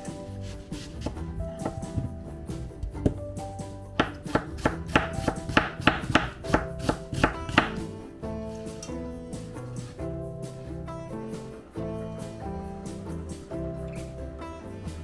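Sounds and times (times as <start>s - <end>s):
soft background music: 0.0s - 15.0s
knife chopping on plastic board: 4.0s - 7.9s.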